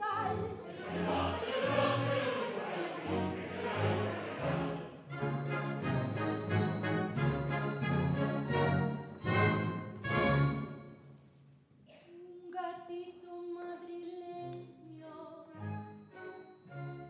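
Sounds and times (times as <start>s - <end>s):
orchestra playing: 0.0s - 11.1s, 15.6s - 17.0s.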